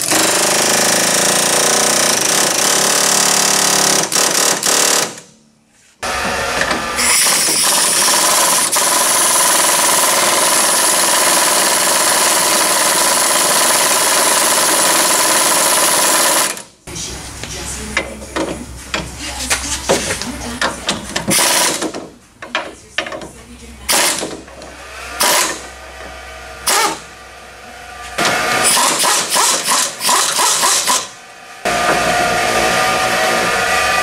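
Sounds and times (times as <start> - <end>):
impact wrench running: 0.0 - 5.3, 6.0 - 16.7, 21.2 - 22.0, 23.9 - 34.0
pneumatic air hammer chattering: 0.0 - 5.3, 6.4 - 16.7, 20.8 - 22.0, 23.9 - 24.4, 25.2 - 25.7, 26.6 - 27.1, 28.2 - 31.1.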